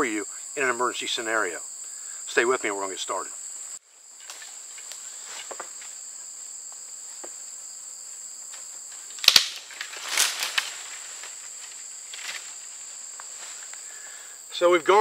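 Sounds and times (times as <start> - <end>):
insect chorus drone: 0.0 - 15.0
rustling crackle: 8.0 - 13.9.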